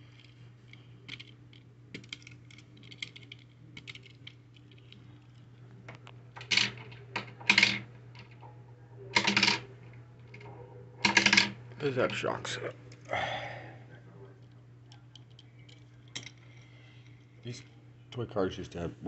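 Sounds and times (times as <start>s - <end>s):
faint low hum: 0.0s - 19.0s
metal toy cars clicking on plastic: 1.9s - 4.9s.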